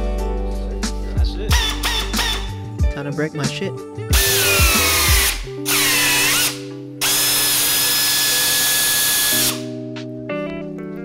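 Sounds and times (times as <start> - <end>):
background music: 0.0 - 11.0
pneumatic air drill drilling: 1.5 - 2.6, 4.1 - 9.7.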